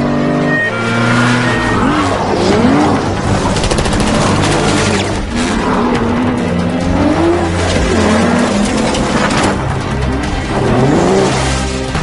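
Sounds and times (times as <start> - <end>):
film score: 0.0 - 12.0
rapid gunfire: 3.2 - 5.2.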